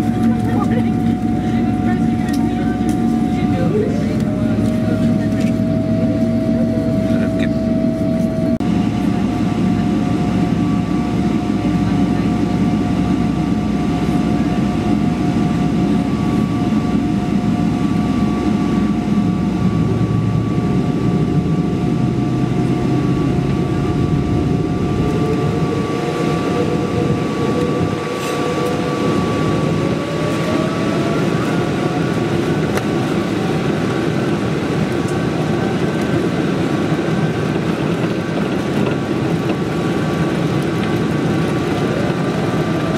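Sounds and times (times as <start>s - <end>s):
jet engines whining: 0.0s - 42.9s.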